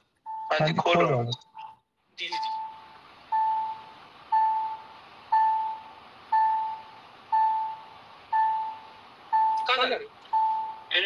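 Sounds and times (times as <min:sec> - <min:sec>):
car warning chime: 0:02.3 - 0:11.0.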